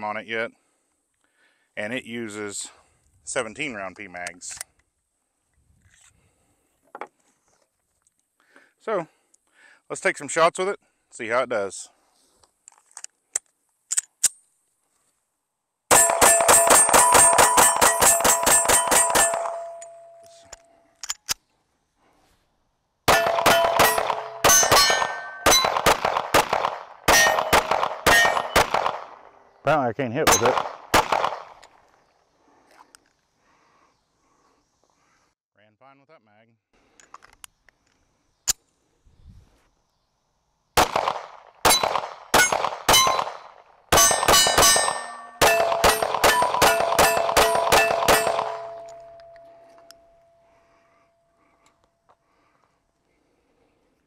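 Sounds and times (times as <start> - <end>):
rapid pistol shots: 15.9 - 19.7, 23.1 - 29.3, 30.3 - 31.6, 40.8 - 49.2
steel target plates ringing: 15.9 - 20.5, 23.1 - 25.8, 27.1 - 28.6, 41.7 - 43.3, 44.0 - 50.6.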